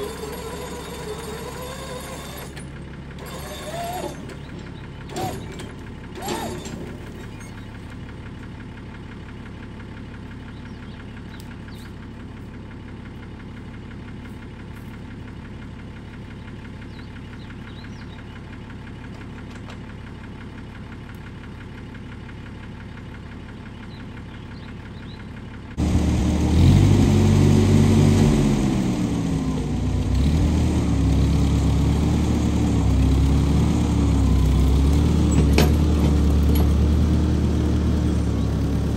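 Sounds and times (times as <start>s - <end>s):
tractor engine starting and revving: 0.0s - 11.9s, 23.8s - 38.9s
low engine hum: 0.0s - 38.9s.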